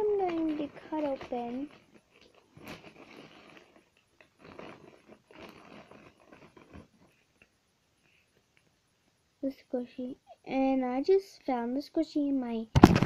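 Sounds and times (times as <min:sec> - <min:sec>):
small objects rustling and scraping: 0:00.0 - 0:08.7.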